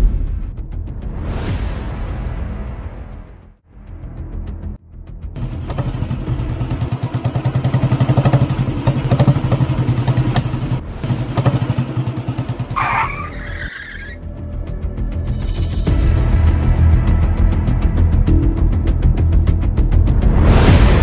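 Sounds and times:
engine running and revving: 5.3 - 14.3
high-pitched screech: 12.8 - 14.2.

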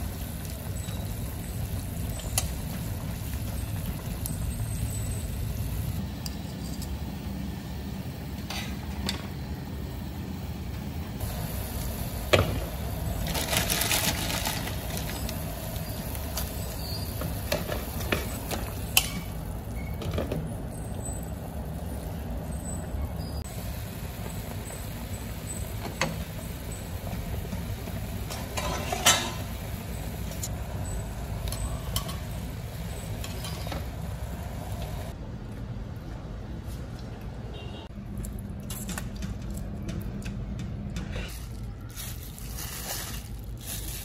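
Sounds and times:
water boiling in a pot: 0.0 - 7.5, 10.6 - 35.2
metal tongs clinking on pot: 18.9 - 19.4, 31.4 - 32.4.

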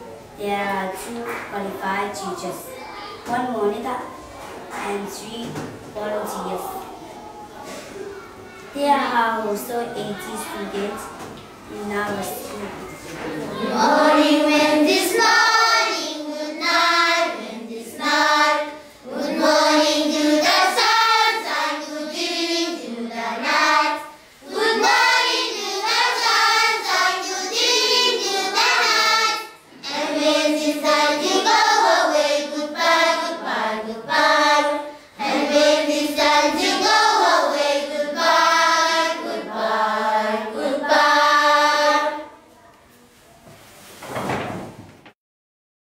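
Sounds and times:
children singing together: 13.0 - 42.4.

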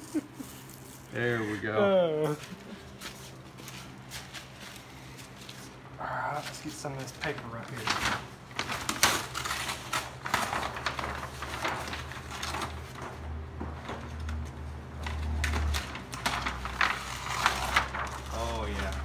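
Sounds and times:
paper crinkling and rustling: 6.4 - 19.0.

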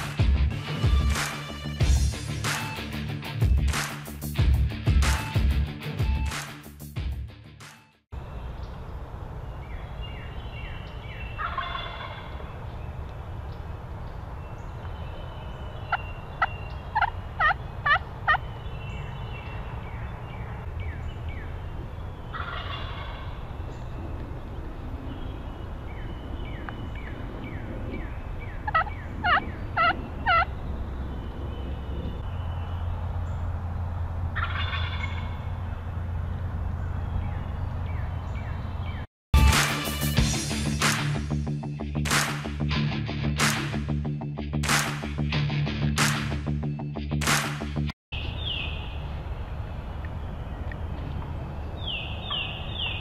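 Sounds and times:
turkey gobbling: 11.4 - 12.4, 15.8 - 18.5, 22.3 - 23.4, 28.6 - 30.5, 34.4 - 35.5
turkey yelping: 11.4 - 12.4, 15.9 - 18.4, 22.3 - 23.4, 28.6 - 30.5, 34.4 - 35.5.

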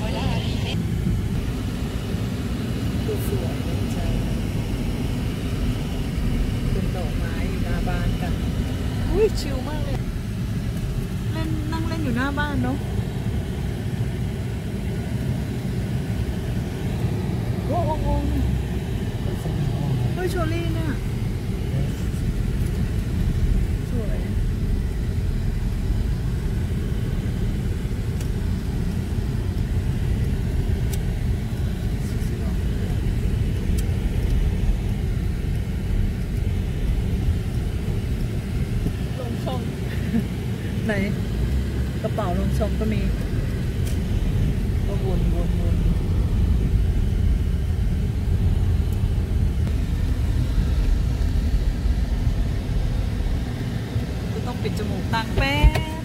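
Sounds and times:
car interior rumble: 0.0 - 56.0.

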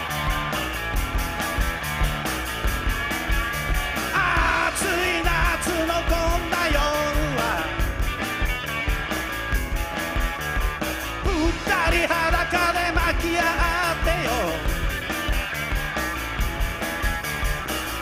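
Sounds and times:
drum beat: 0.0 - 18.0
electric guitars: 0.0 - 18.0
person singing and shouting: 4.1 - 7.8, 11.2 - 14.8.

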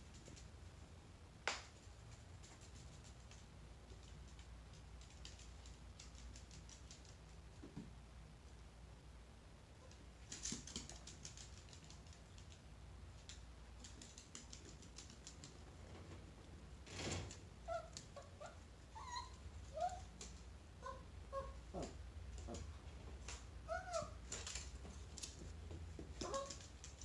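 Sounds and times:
dog claws clicking on wood floor: 1.5 - 7.7, 10.2 - 12.6, 13.2 - 15.6, 23.3 - 27.0
dog whimpering: 17.7 - 20.1, 20.8 - 22.6, 23.7 - 24.2.

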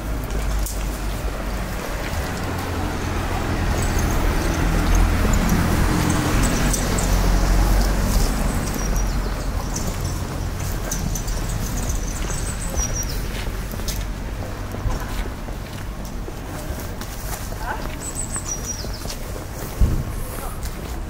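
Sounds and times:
motor vehicle passing by: 0.0 - 15.2.

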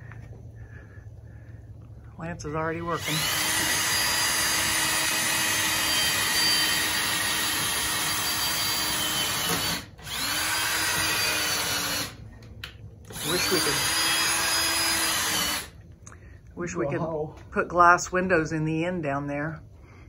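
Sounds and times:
cordless drill running: 2.9 - 12.2, 13.1 - 15.8.

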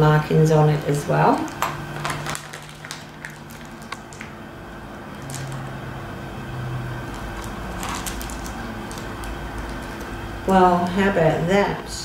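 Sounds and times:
low room hum: 0.0 - 12.0
plastic bag crinkling: 1.3 - 4.4, 5.1 - 5.8, 7.0 - 10.2.

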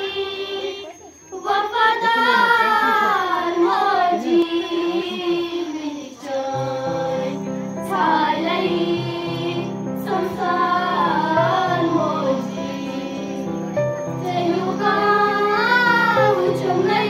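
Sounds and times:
children singing: 0.0 - 17.0
low musical accompaniment: 6.5 - 17.0.

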